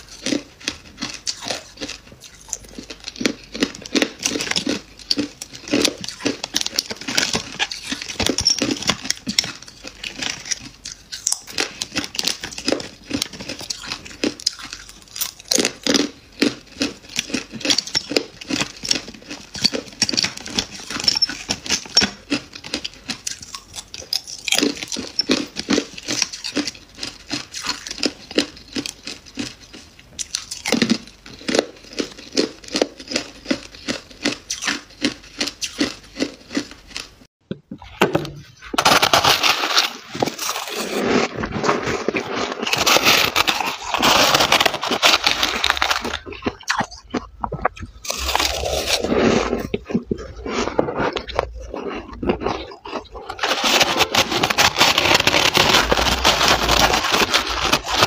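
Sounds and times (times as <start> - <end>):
ice crunching and crackling: 38.8 - 58.0.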